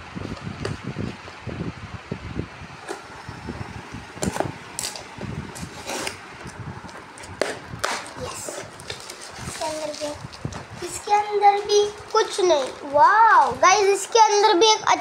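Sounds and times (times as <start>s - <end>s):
cardboard ripping and crinkling: 7.8s - 10.5s.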